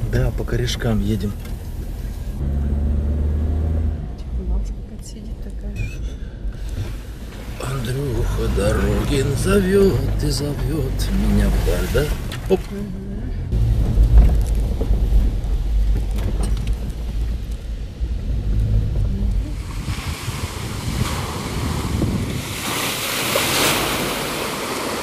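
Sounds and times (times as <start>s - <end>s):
low road rumble in vehicle cabin: 0.0s - 23.0s
tyres splashing through puddle: 6.6s - 12.9s, 13.6s - 25.0s.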